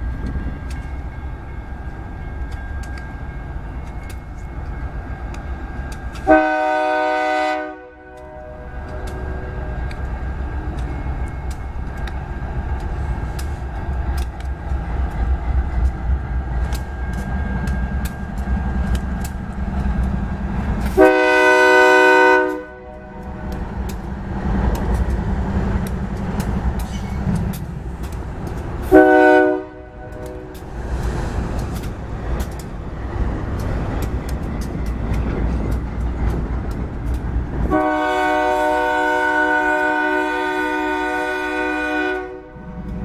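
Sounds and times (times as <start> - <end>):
diesel locomotive engine rumble: 0.0 - 43.0
train air horn: 6.2 - 9.8, 20.9 - 23.2, 28.8 - 30.6, 37.7 - 42.6.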